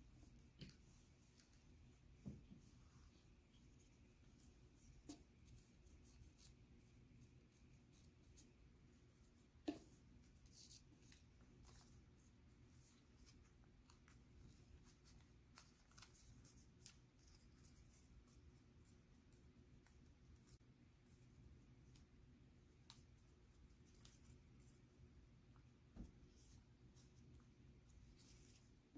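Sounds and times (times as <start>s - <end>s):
paper rustling and crinkling: 10.3s - 18.4s.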